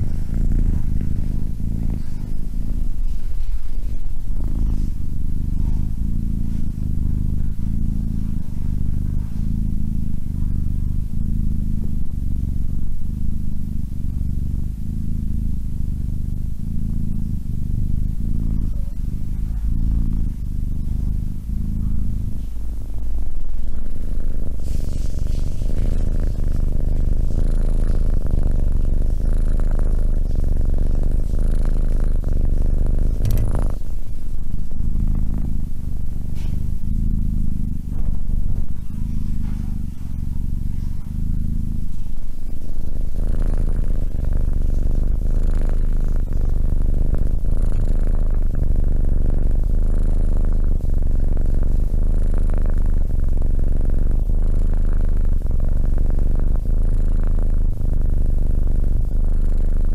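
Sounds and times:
kitten purring: 0.0s - 59.9s.

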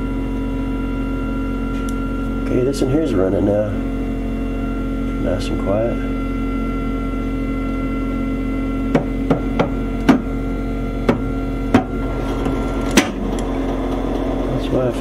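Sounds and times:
stove motors humming: 0.0s - 15.0s
stove agitator knocking: 8.9s - 10.3s, 11.0s - 14.3s.

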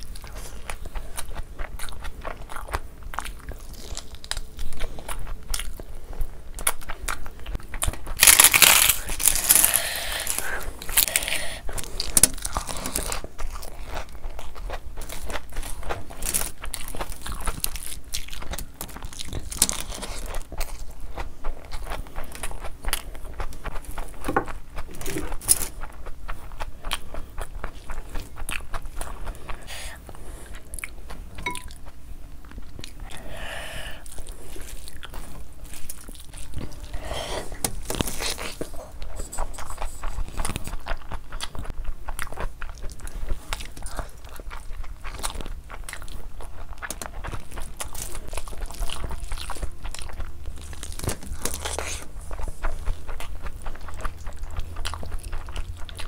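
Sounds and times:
chewing and lip smacking: 0.0s - 33.3s, 34.0s - 36.9s, 37.5s - 56.0s
hand squishing rice on foil: 7.6s - 21.4s, 43.4s - 54.8s.

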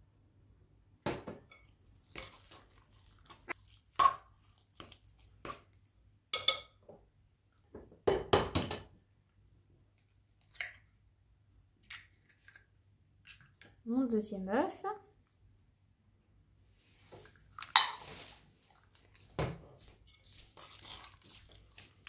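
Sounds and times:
fork stirring thick mash: 1.9s - 5.9s, 19.8s - 22.0s.

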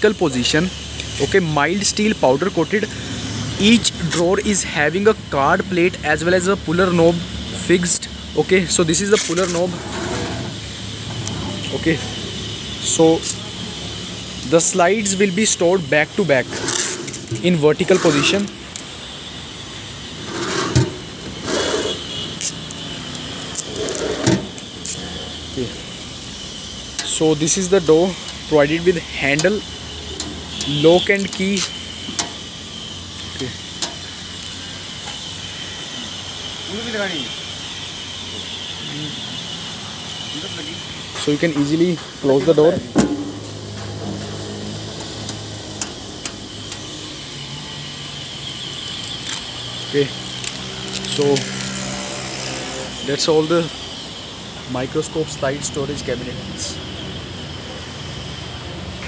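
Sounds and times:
metal cabinet scraping and sliding: 9.4s - 10.6s, 16.4s - 18.5s, 20.2s - 22.0s, 23.7s - 24.6s.

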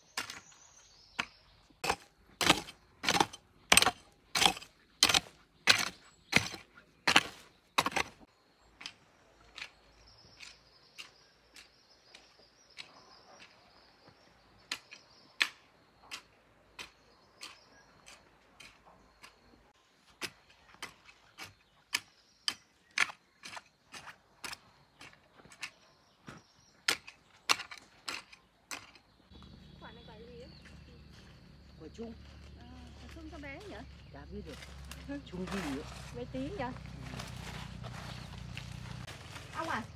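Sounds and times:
hand hoe chopping dry soil: 0.1s - 13.8s, 14.6s - 25.9s, 26.7s - 29.0s.

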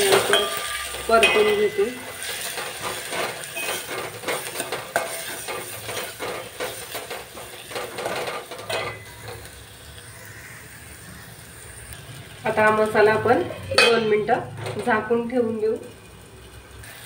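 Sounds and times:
metal spoon scraping a pot: 0.0s - 9.5s
light frying sizzle: 0.0s - 17.0s.

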